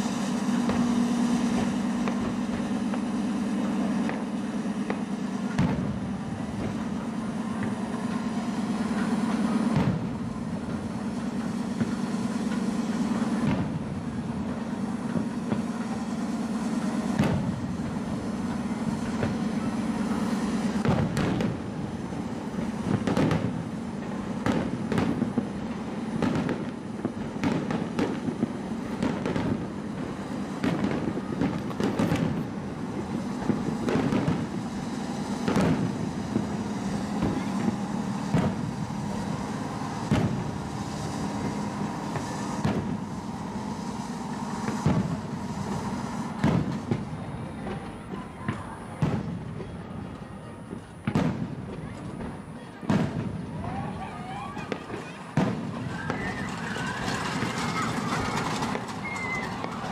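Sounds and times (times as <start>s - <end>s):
steady low hum: 0.0s - 52.6s
fireworks bursting: 0.0s - 59.9s.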